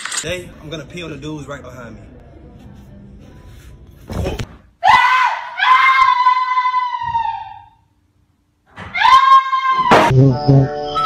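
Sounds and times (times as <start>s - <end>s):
high-pitched human scream: 4.8s - 7.8s, 8.8s - 10.1s.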